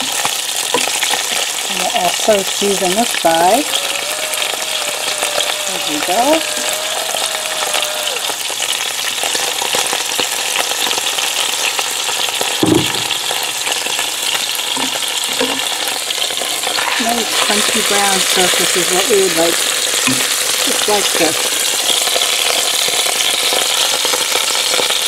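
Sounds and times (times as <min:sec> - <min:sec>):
meat sizzling and crackling in oil: 0:00.0 - 0:25.0
low thump: 0:12.6 - 0:13.2.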